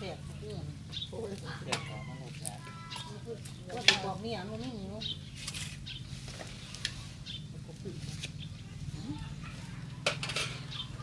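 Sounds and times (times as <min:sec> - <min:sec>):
spoons clinking on plates: 0:10.0 - 0:10.7.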